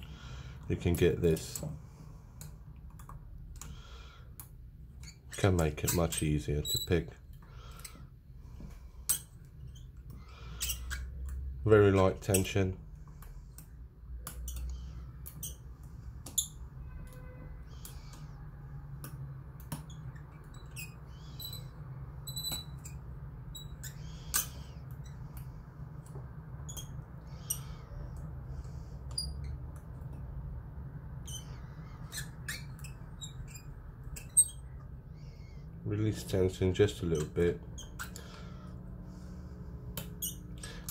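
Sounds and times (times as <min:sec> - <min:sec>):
steady low hum: 0:00.0 - 0:40.9.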